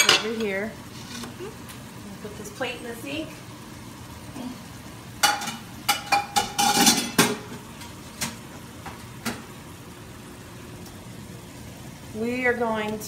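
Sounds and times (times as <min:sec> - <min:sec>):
dishes clattering in a sink: 0:00.0 - 0:00.4, 0:05.2 - 0:08.4.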